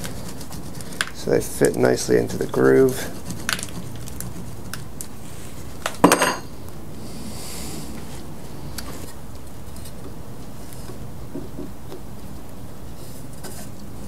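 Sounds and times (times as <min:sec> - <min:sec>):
metal tool clattering on wood: 0:06.0 - 0:06.4.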